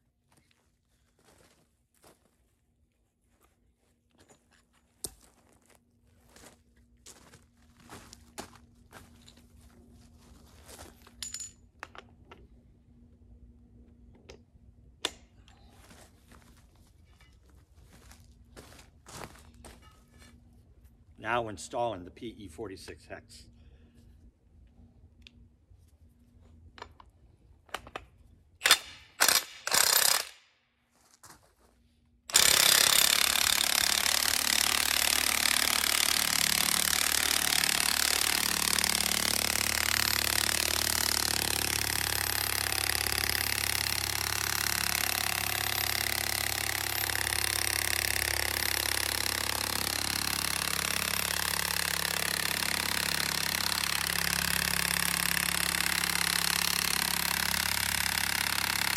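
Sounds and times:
cordless power driver running: 32.3s - 58.9s.

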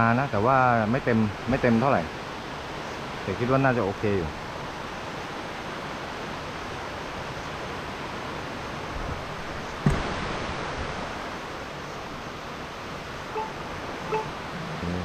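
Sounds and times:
waterfall rushing: 2.1s - 15.0s
sharp knock: 9.8s - 10.1s.

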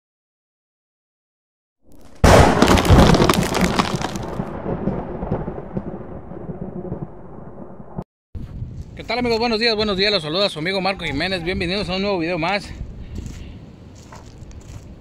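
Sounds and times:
thunder crack and rumble: 2.2s - 8.7s.

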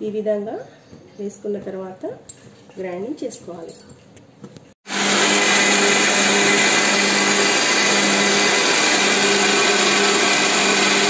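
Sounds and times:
mixer grinder motor whirring: 4.8s - 11.0s.

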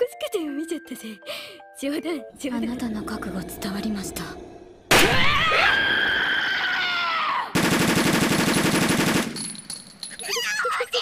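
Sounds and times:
girl's drawn-out cry: 10.2s - 11.0s.

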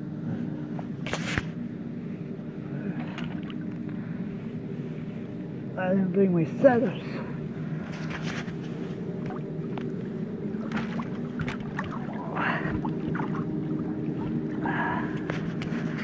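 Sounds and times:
engine humming: 1.6s - 16.0s
light clicks and rustles: 7.8s - 10.0s, 15.1s - 16.0s.

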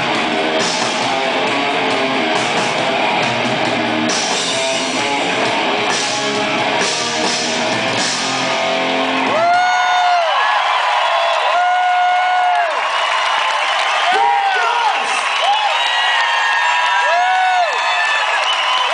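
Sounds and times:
live rock band playing: 0.0s - 9.6s.

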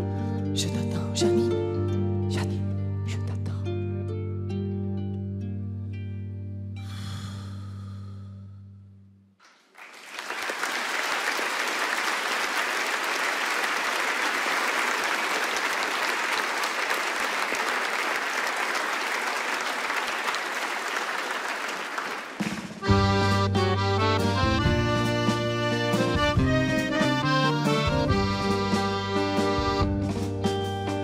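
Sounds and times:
audience applauding: 9.4s - 23.0s
piano accordion chords: 22.8s - 31.0s.

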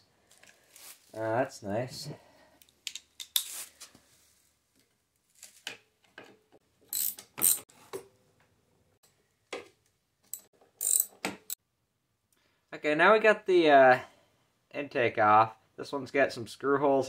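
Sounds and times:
hand ratchet clicking: 6.9s - 7.6s, 10.3s - 11.6s.

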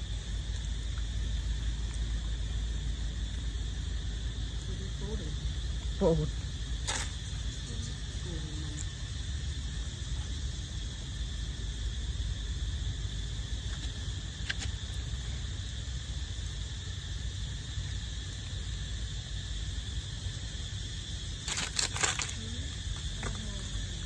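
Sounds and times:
insects chorus: 0.0s - 24.0s
monkey scuffling and clicks: 21.4s - 22.4s.

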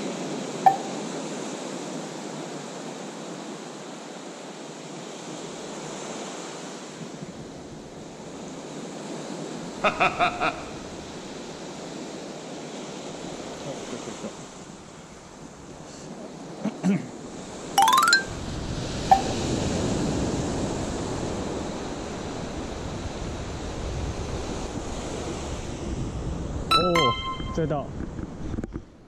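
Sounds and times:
short pitched blips: 0.6s - 1.1s, 26.7s - 27.8s.

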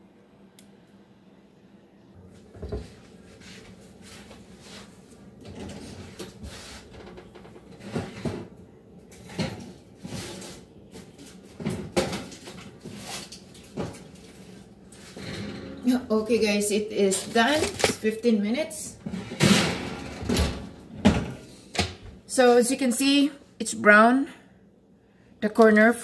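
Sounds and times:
metal baking pan clattering: 19.1s - 21.3s.

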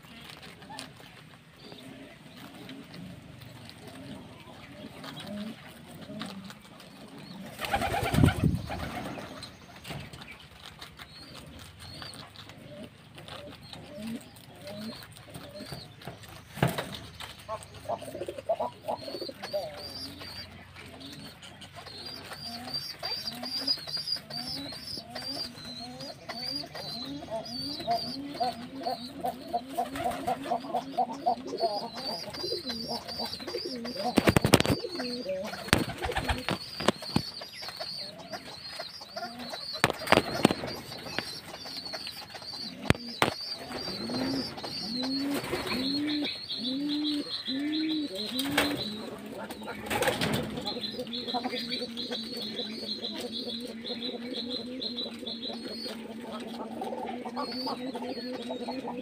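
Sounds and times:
doves cooing: 0.0s - 59.0s
high bird chirping: 13.6s - 59.0s
sharp clicks: 34.1s - 35.0s, 39.6s - 43.6s.

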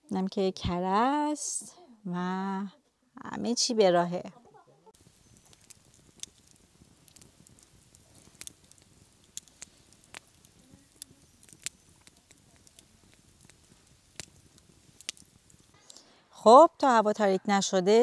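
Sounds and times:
background hiss: 1.3s - 17.0s
campfire crackling: 4.4s - 17.8s.

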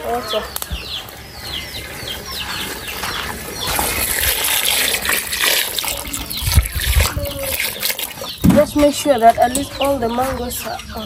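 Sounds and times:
water pouring into pot: 3.7s - 8.4s.

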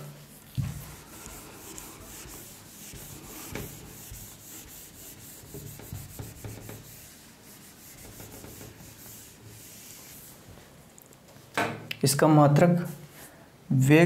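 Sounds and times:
duster rubbing on whiteboard: 0.0s - 10.7s.

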